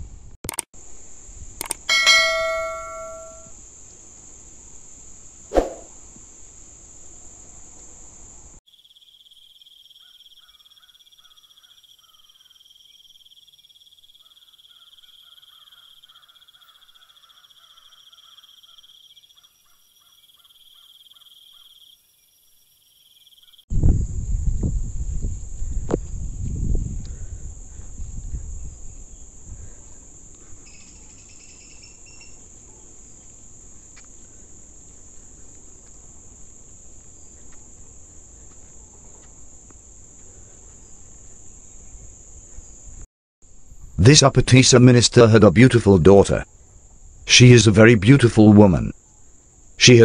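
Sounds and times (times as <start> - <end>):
sharp click: 0.4 - 0.7, 1.6 - 3.5
high insect drone: 0.8 - 48.2
insect trill with chirps: 0.8 - 50.0
animation chime: 1.9 - 3.5.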